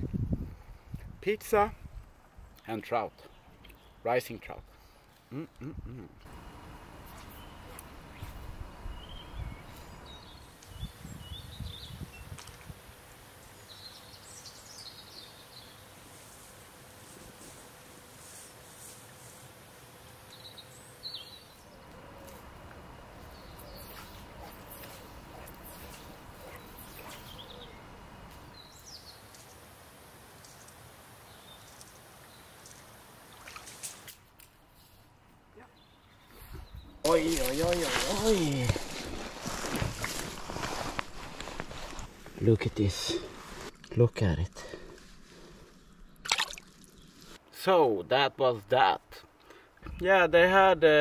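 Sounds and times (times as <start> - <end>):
small birds chirping: 2.5 - 12.6, 13.4 - 16.0, 20.2 - 29.6, 35.6 - 47.4.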